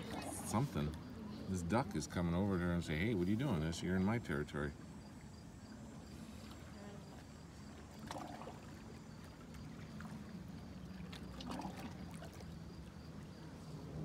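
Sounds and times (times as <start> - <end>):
water lapping among rocks: 6.0 - 14.0.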